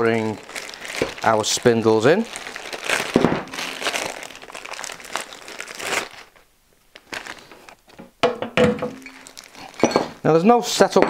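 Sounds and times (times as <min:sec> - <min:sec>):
plastic bag crinkling: 0:00.0 - 0:08.0, 0:09.0 - 0:10.0
sharp knocks and clinks: 0:08.2 - 0:10.2.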